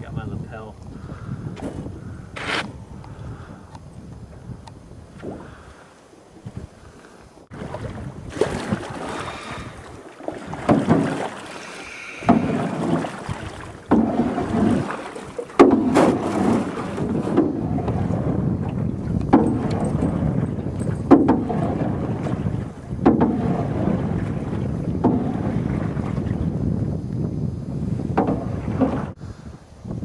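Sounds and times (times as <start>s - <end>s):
oar splashing through water: 7.5s - 26.9s, 28.0s - 29.2s.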